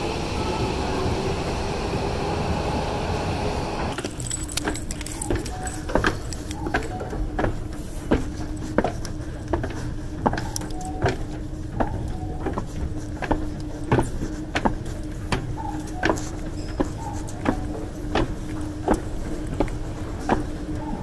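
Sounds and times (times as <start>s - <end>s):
station noise: 0.0s - 14.0s
escalator humming: 0.0s - 21.0s
escalator steps clicking: 3.9s - 21.0s.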